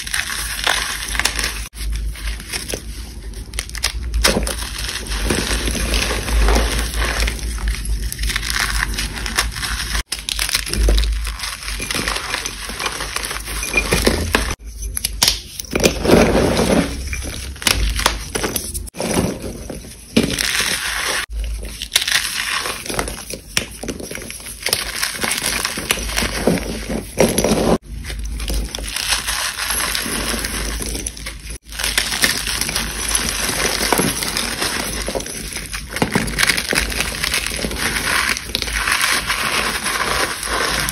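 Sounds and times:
hands crushing chalk: 20.0 - 40.9.

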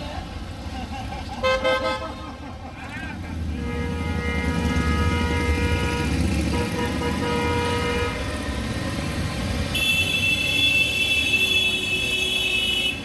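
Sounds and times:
motorcycles riding past: 2.7 - 9.9
long horn toot: 3.5 - 8.4, 9.7 - 13.0.

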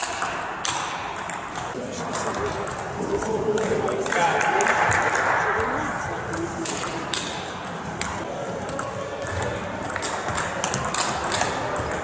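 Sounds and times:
table tennis ball clicking: 0.0 - 4.1, 8.0 - 12.0.

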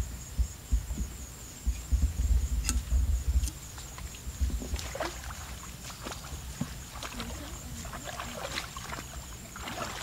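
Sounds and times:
low rumbling thumps on microphone: 0.0 - 5.1
high-pitched insect trill: 0.0 - 10.0.

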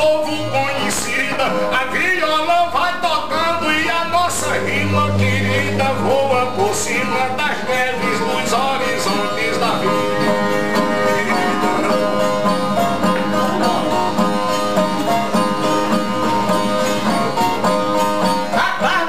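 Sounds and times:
man singing: 0.0 - 12.2, 18.5 - 19.0
strummed viola: 0.0 - 19.0.

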